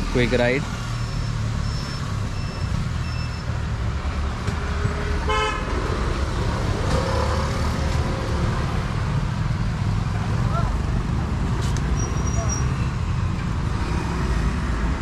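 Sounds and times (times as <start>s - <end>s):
road traffic rumble: 0.0s - 15.0s
vehicle horn toot: 5.3s - 5.7s.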